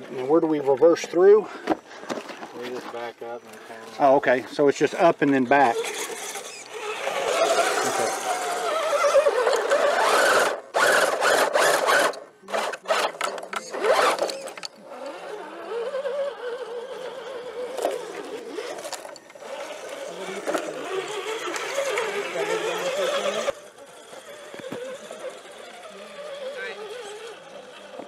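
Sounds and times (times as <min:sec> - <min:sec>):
electric motor whine: 0:05.3 - 0:28.0.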